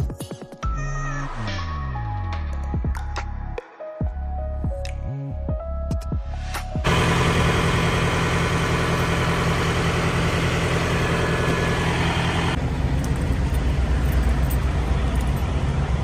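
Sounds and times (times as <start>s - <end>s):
diesel engine idling: 6.8s - 16.0s.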